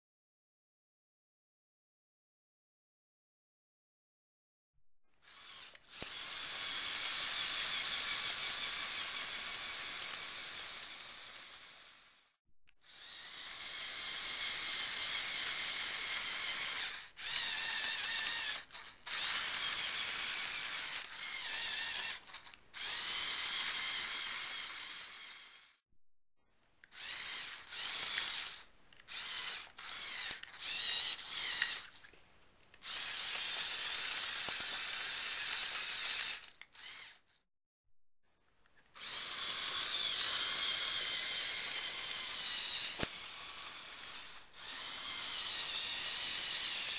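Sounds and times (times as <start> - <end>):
electric motor whine: 12.9 - 25.8, 27.0 - 31.9, 32.8 - 37.2, 39.0 - 46.9
plastic gears and tracks clattering: 16.2 - 24.5, 26.8 - 37.4, 38.8 - 46.9.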